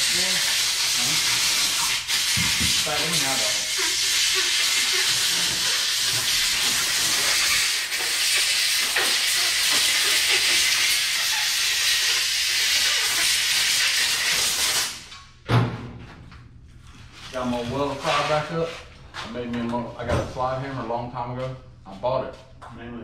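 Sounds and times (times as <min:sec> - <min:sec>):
compressed air blow gun hissing: 0:00.0 - 0:15.1
thud: 0:15.5 - 0:16.1.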